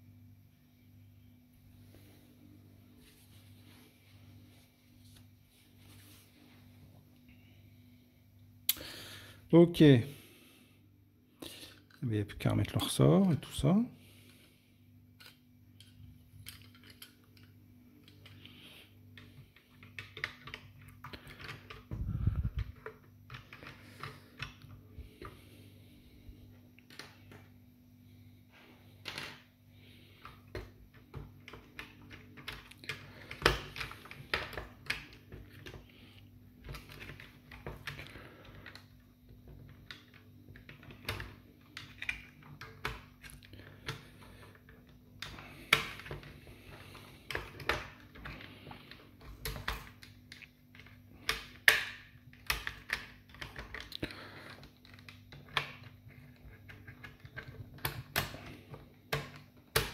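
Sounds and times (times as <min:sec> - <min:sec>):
plastic parts clicking and tapping: 0:15.2 - 0:25.4, 0:30.2 - 0:36.0, 0:36.6 - 0:59.9.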